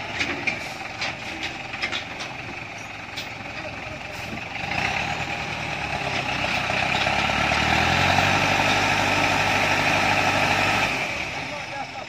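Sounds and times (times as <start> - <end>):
truck engine under load: 0.0 - 12.0.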